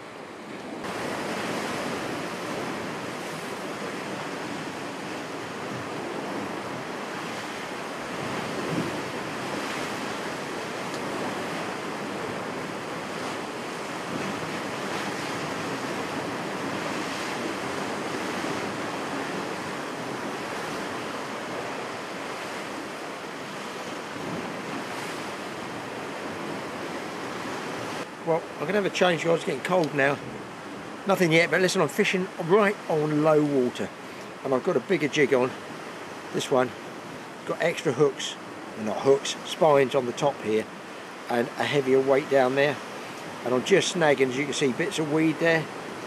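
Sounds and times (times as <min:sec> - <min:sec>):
wind buffeting microphone: 0:00.0 - 0:28.8
waves washing against rocks: 0:00.6 - 0:46.0.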